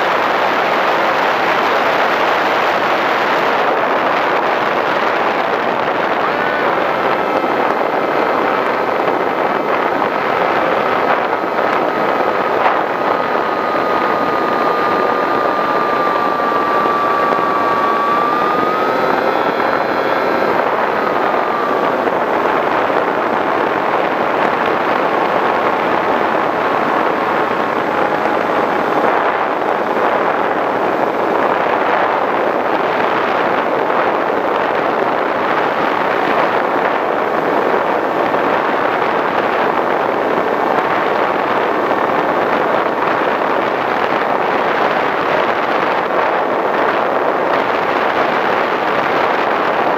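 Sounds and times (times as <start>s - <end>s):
rush of air: 0.1s - 49.9s
electric motor whine: 1.8s - 39.3s.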